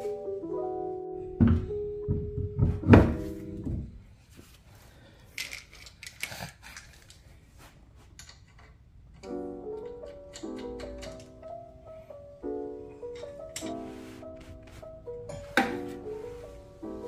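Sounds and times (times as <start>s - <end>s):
light plucked background music: 0.0s - 3.9s, 9.3s - 17.0s
wrench clicking and tapping: 8.2s - 11.3s.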